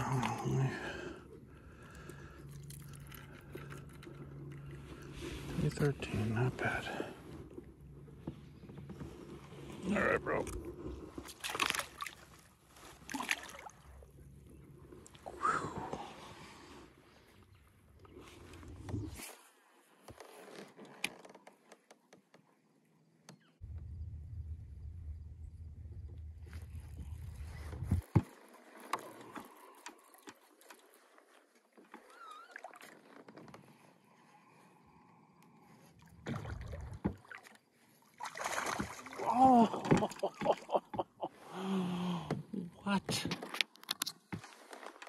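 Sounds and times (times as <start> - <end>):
water splashing: 11.2 - 14.1, 36.2 - 40.8
low rumble: 23.6 - 28.0.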